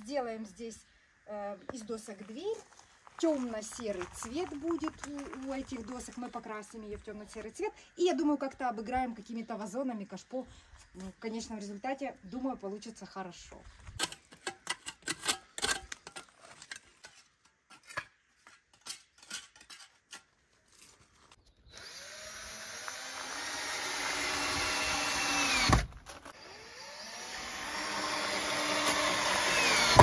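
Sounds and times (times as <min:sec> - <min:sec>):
cordless drill driving into timber: 0:21.7 - 0:30.0.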